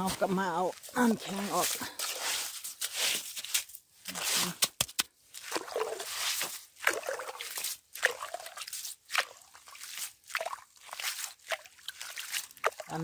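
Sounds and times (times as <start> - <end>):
slushy water and ice sloshing: 0.0 - 13.0
plastic scoop scraping ice: 1.0 - 4.8
water dripping: 5.4 - 13.0.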